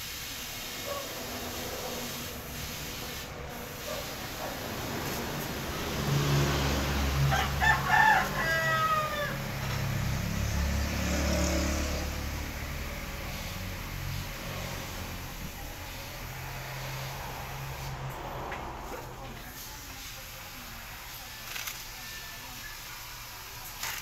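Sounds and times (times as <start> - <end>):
rooster crowing: 6.7 - 10.0.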